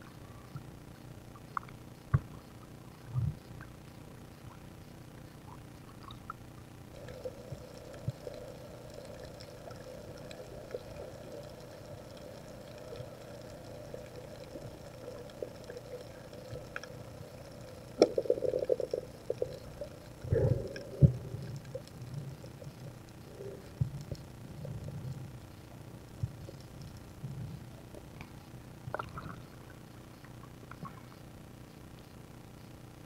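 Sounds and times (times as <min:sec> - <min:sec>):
faint steady underwater hum: 0:00.0 - 0:33.0
bubbling water: 0:05.5 - 0:29.8.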